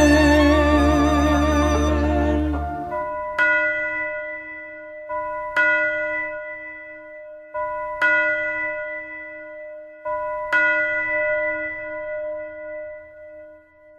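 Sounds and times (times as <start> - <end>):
string music: 0.0 - 3.2
church bell tolling: 0.0 - 13.9
softer bell tone: 0.0 - 13.9.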